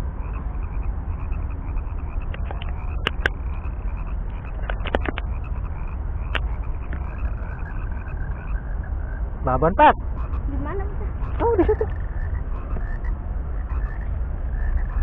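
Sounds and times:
frog croaks: 0.0s - 15.0s
frogs chirping chorus: 0.0s - 15.0s
low steady rumble: 0.0s - 15.0s.

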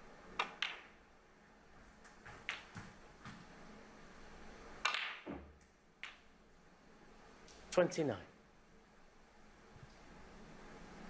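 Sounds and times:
snooker balls clicking: 0.3s - 1.0s, 2.0s - 3.0s, 4.8s - 6.3s.

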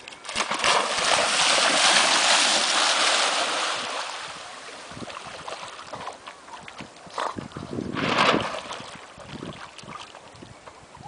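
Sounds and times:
dog splashing in water: 0.2s - 4.1s.

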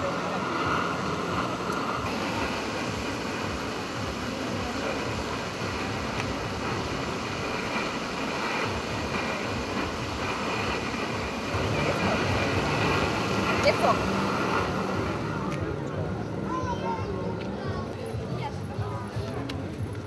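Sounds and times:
cotton candy machine whirring: 0.0s - 15.9s.

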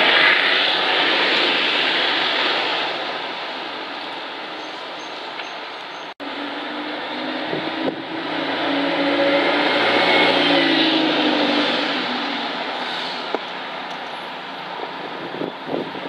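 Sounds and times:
diesel bus driving past: 6.2s - 14.8s.

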